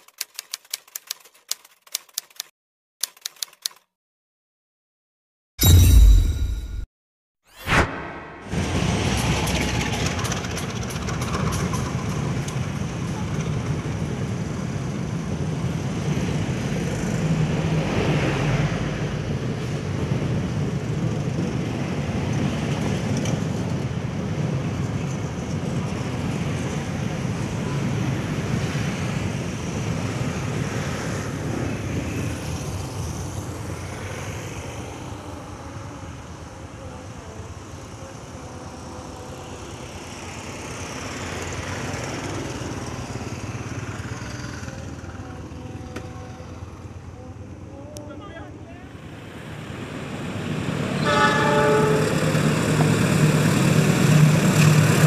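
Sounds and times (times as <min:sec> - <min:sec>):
train wheels rumbling on rails: 0:08.5 - 0:17.6, 0:49.6 - 0:55.0.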